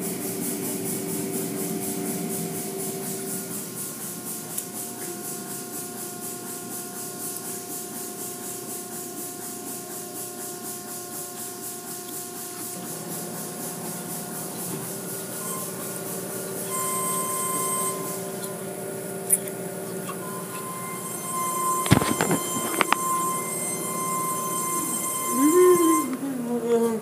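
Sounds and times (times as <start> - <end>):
machine whine: 12.4 - 27.0.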